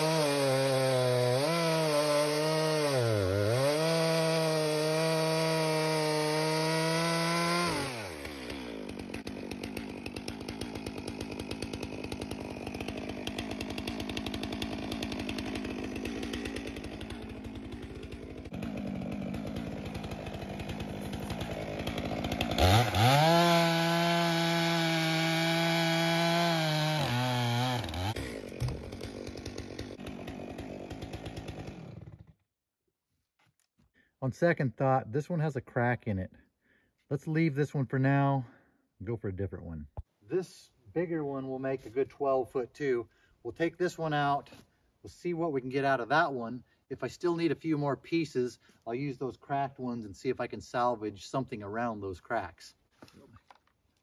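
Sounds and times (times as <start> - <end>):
chainsaw cutting logs: 0.0 - 32.5, 43.5 - 54.0.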